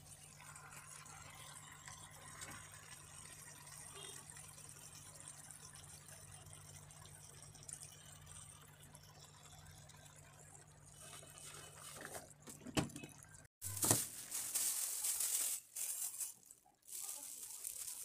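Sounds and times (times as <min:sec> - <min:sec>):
rustling: 0:13.7 - 0:18.0.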